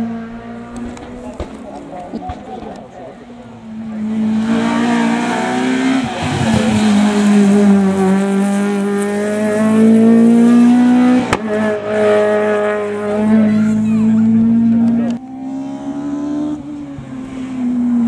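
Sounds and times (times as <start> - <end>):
rally car engine at full throttle: 0.0 - 18.0
sharp crack: 0.7 - 3.0.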